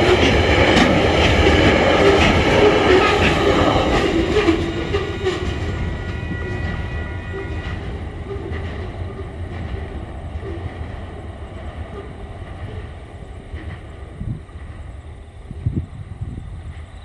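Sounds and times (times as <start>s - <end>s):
train wheels rumbling on rail: 0.0s - 17.0s.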